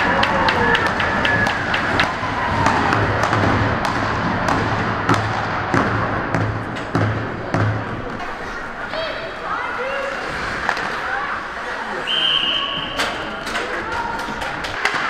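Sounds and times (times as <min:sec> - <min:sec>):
spectators clapping: 0:00.0 - 0:04.0, 0:13.4 - 0:15.0
sticks banging on boards: 0:00.1 - 0:07.8.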